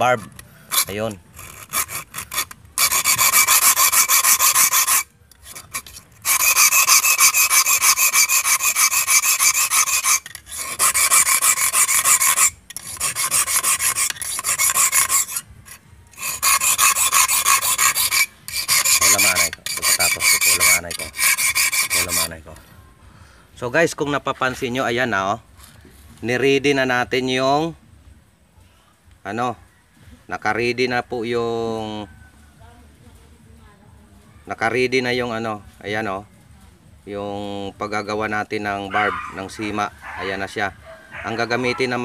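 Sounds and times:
hand file rasping on wire: 0.0 - 22.6.

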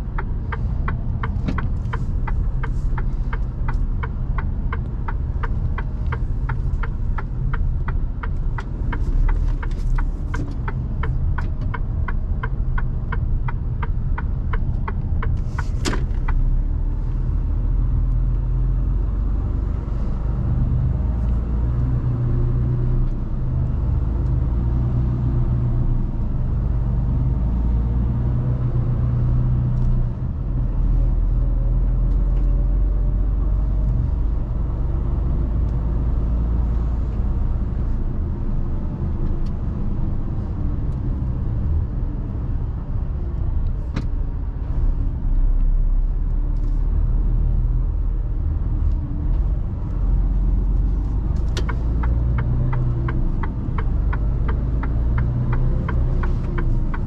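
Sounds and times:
turn indicator ticking: 0.0 - 20.2, 48.4 - 57.0
diesel engine humming: 0.0 - 25.2, 45.9 - 57.0.

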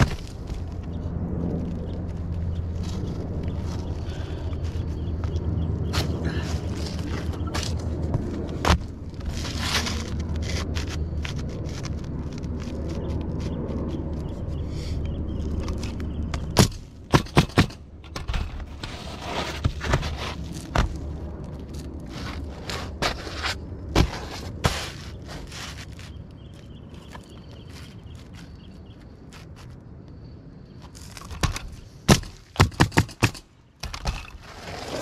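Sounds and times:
steady low hum: 0.0 - 34.7
roof scraping: 5.8 - 14.4, 17.2 - 28.6, 33.2 - 35.0.

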